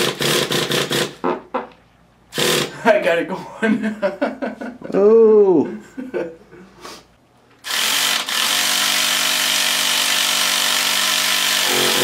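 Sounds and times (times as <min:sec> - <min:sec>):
small engine buzzing idle: 0:11.6 - 0:12.0.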